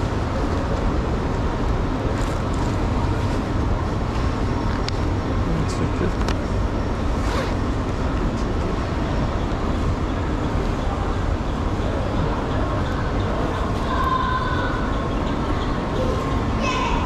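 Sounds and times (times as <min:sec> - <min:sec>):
low rumble of station hall: 0:00.0 - 0:17.0
indistinct voices: 0:07.7 - 0:17.0.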